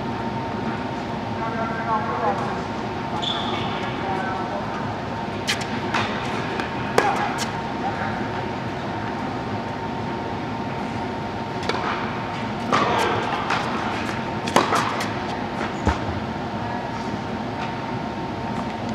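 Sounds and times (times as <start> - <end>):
ventilation hum: 0.0 - 18.9
tennis balls struck by rackets: 5.4 - 7.7, 11.6 - 16.1.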